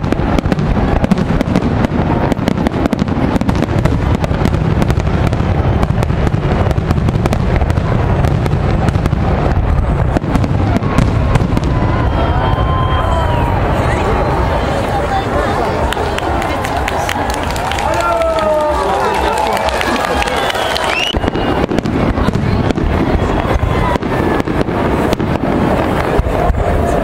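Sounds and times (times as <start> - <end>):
firework shell bursts and crackling: 0.0 - 11.8, 19.4 - 27.0.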